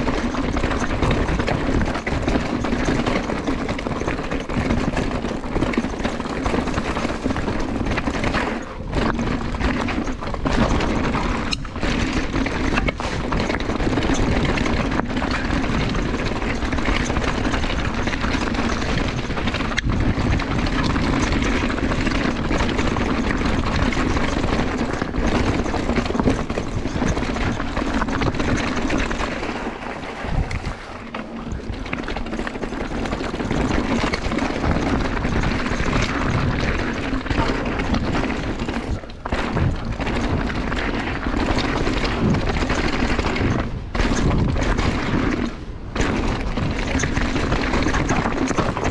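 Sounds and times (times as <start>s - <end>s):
bike chain and frame rattling: 0.0s - 48.9s
bike tyres rolling on dirt: 0.0s - 48.9s.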